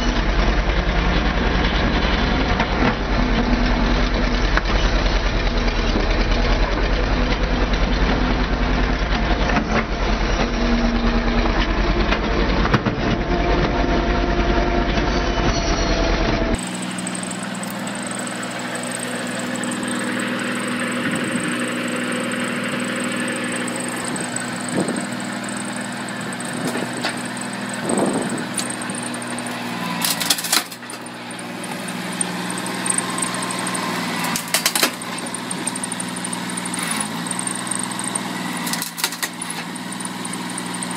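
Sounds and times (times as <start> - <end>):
machinery engine running: 16.0 - 40.9.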